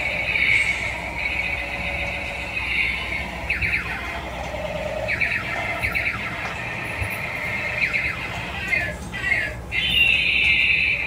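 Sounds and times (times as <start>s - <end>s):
toy electronic sound effects: 0.0s - 11.0s.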